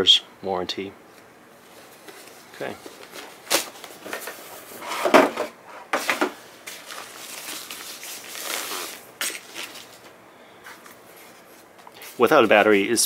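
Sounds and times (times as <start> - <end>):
plastic sleeve rustling: 1.6 - 4.8, 6.0 - 12.9.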